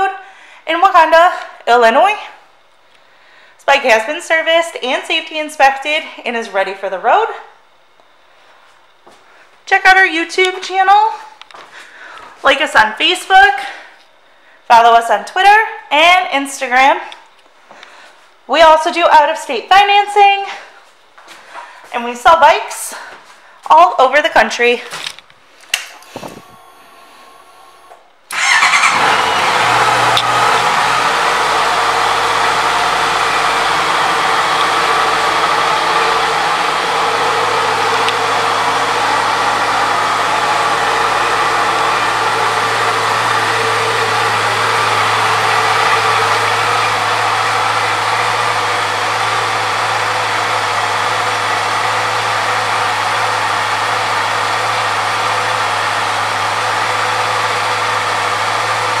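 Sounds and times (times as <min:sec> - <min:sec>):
motorcycle engine idling: 0:26.2 - 0:59.0.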